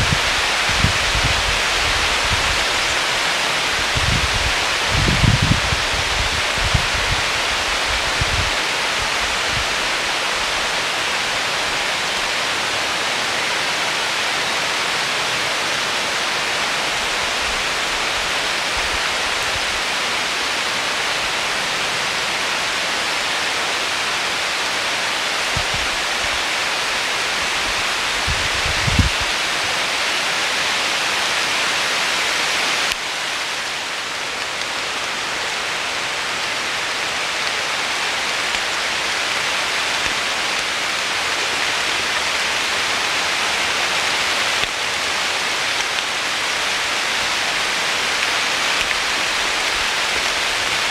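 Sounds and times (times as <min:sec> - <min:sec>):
wind buffeting microphone: 0:00.0 - 0:09.9, 0:25.4 - 0:26.4, 0:27.5 - 0:29.6
heavy rain on woodland: 0:00.0 - 0:50.9.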